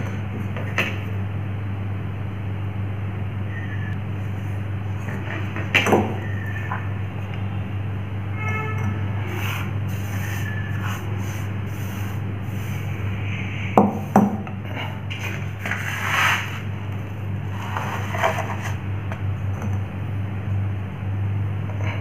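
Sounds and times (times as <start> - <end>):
steady low hum: 0.0 - 22.0
hands scraping soil in pot: 15.2 - 16.7.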